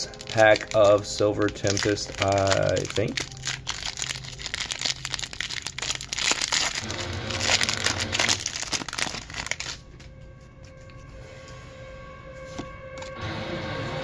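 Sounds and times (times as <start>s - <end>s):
foil wrapper crinkling and tearing: 0.0s - 10.8s.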